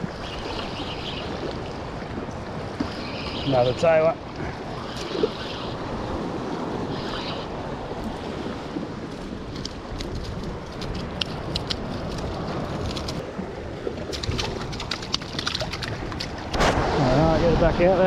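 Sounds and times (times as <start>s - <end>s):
wind buffeting microphone: 0.0s - 18.0s
waves washing against rocks: 14.0s - 18.0s.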